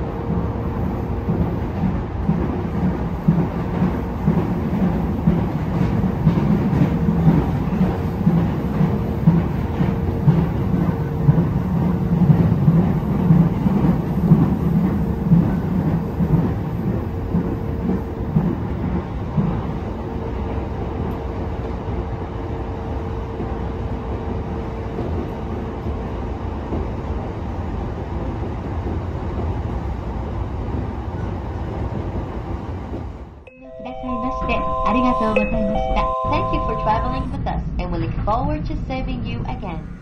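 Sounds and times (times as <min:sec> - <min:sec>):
electric train rumbling: 0:00.0 - 0:40.0.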